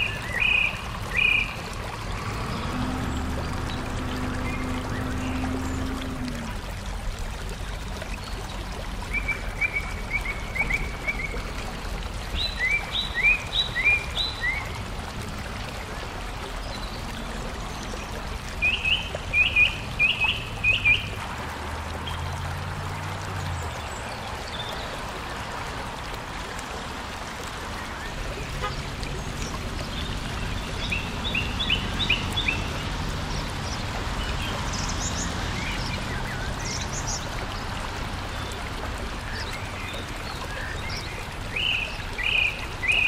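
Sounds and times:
songbird singing: 0:00.0 - 0:06.5, 0:12.3 - 0:14.7, 0:16.6 - 0:21.2, 0:27.9 - 0:38.6, 0:39.3 - 0:43.0
low hum: 0:01.9 - 0:06.9.

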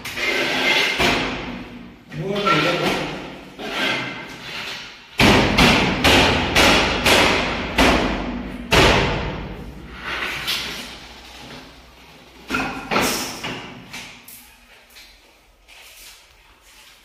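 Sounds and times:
loud knocks on metal window frame: 0:05.2 - 0:09.5.

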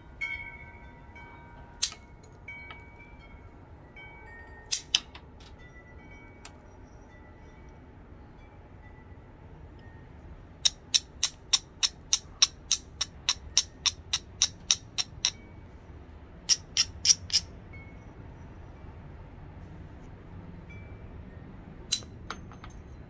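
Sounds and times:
copper bar clicking against stone: 0:01.8 - 0:02.1, 0:04.7 - 0:05.2, 0:10.6 - 0:15.4, 0:16.5 - 0:17.5, 0:21.9 - 0:22.4.

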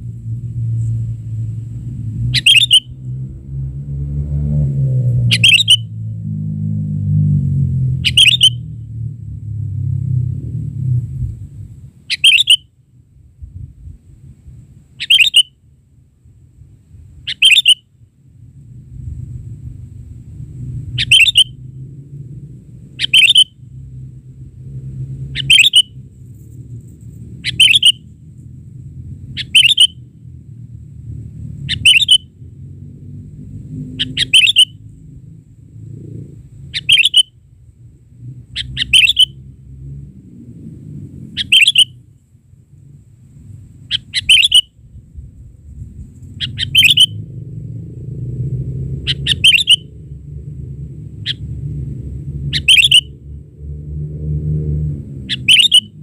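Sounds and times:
steady low rumble: 0:00.0 - 0:56.0
bird calling sharp notes: 0:02.3 - 0:03.0, 0:05.2 - 0:05.9, 0:07.9 - 0:08.7, 0:12.1 - 0:12.7, 0:15.0 - 0:15.6, 0:17.2 - 0:17.9, 0:21.0 - 0:21.6, 0:22.9 - 0:23.6, 0:25.2 - 0:26.0, 0:27.4 - 0:28.0, 0:29.3 - 0:30.0, 0:31.6 - 0:32.3, 0:33.9 - 0:34.8, 0:36.7 - 0:37.4, 0:38.5 - 0:39.4, 0:41.3 - 0:42.0, 0:43.8 - 0:44.8, 0:46.4 - 0:47.3, 0:48.9 - 0:50.0, 0:52.5 - 0:53.2, 0:55.3 - 0:56.0.

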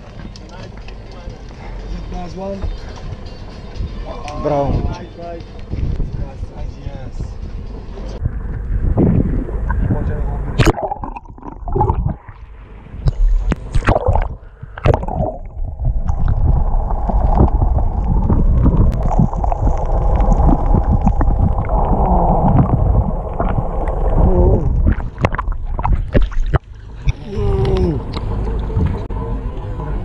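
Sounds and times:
water gurgling and sloshing: 0:07.5 - 0:30.0
muffled underwater rush: 0:08.1 - 0:30.0
water splashing at surface: 0:09.0 - 0:27.8.

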